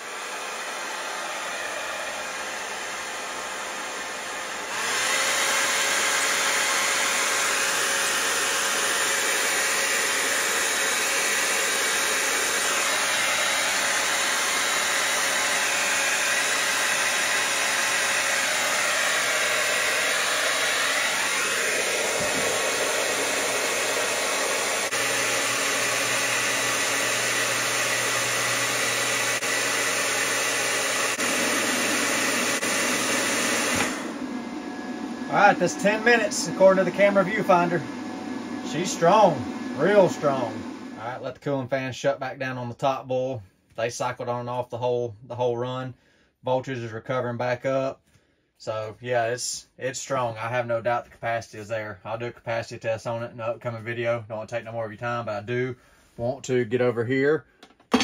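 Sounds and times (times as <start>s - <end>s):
hot-air blower whooshing: 0.0s - 41.3s.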